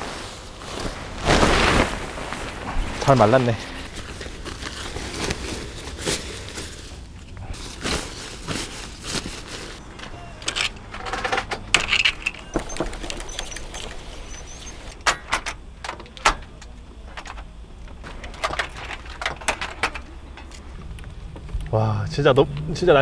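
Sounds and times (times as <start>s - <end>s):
camping gear rustling and clattering: 0.0s - 21.8s
awning clicks and knocks: 10.0s - 21.7s.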